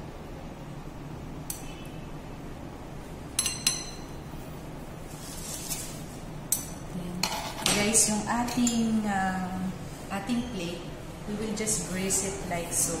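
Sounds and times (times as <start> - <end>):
low room hum: 0.0 - 13.0
metal spatula clinking on plate: 3.4 - 4.1.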